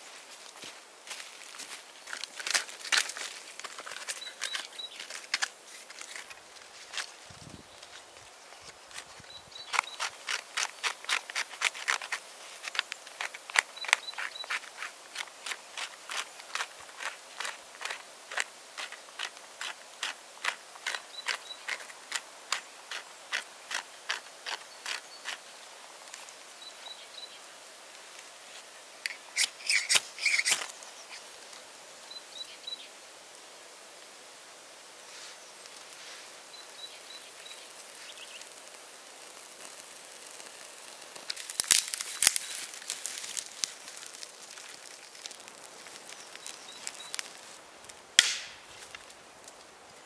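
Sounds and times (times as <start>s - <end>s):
ferro rod rasping strikes: 48.2s - 48.6s.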